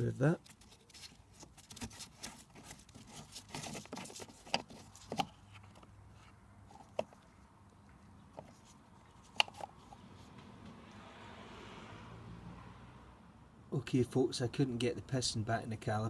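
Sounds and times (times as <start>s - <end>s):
plastic cap rubbing clicks: 3.0s - 5.9s, 8.4s - 10.0s.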